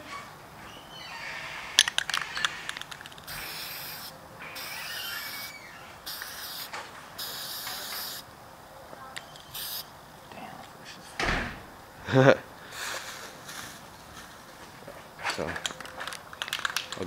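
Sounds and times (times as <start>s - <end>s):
spray can rattling clicks: 1.8s - 5.1s, 15.6s - 17.0s
spray can hissing: 2.8s - 8.3s, 9.5s - 9.9s.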